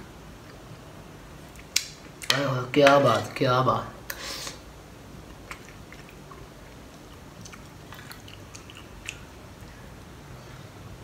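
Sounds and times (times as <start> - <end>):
person chewing: 5.2 - 10.2.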